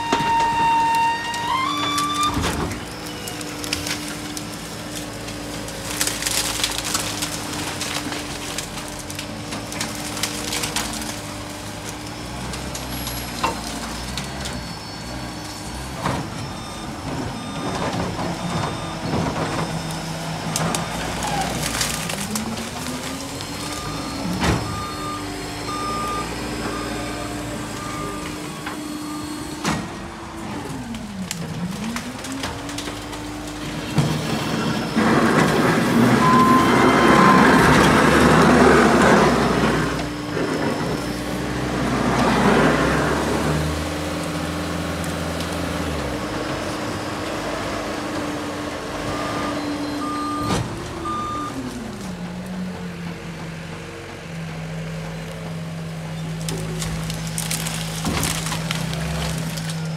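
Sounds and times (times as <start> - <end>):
branches cracking and crunching: 0.0 - 16.3, 17.7 - 52.6, 54.8 - 59.9
engine and hydraulic drone: 0.0 - 59.9
back-up alarm beeping: 13.8 - 21.7, 23.6 - 29.6, 36.1 - 38.4.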